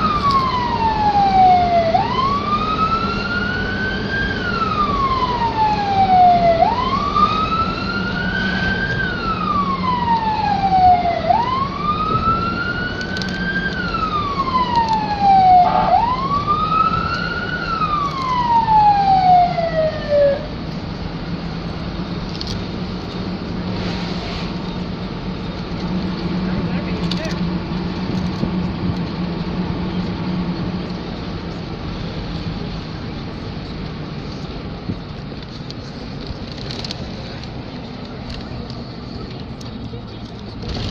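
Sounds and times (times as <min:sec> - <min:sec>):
emergency siren wailing: 0:00.0 - 0:20.8
engine and road drone: 0:00.0 - 0:40.9.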